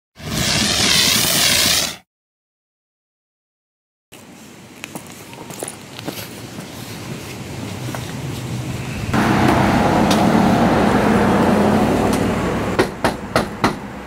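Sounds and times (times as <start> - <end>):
passing traffic: 5.6 - 14.0.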